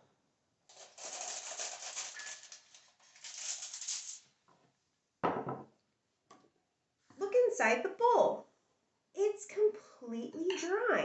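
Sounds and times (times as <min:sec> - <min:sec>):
aluminium foil crinkling: 0:00.7 - 0:04.3.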